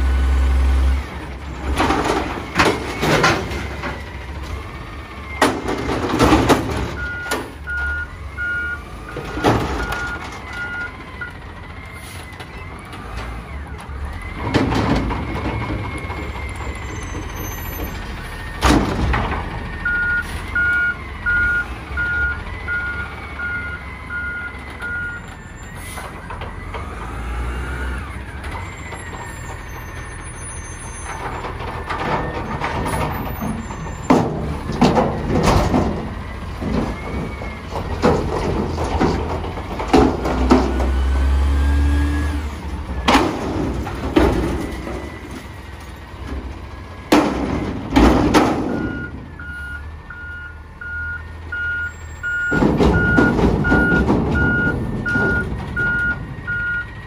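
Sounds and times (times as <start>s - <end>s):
metal dumpsters banging: 0.0s - 57.0s
truck engine revving: 0.0s - 57.0s
backup alarm beeping: 7.0s - 11.4s, 19.8s - 25.3s, 48.7s - 56.9s.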